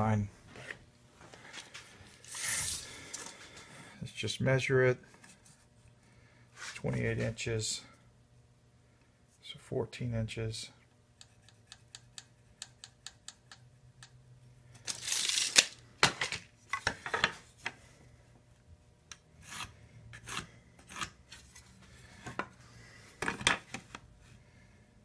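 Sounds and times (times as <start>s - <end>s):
pencil scratching on wood: 11.2s - 12.3s.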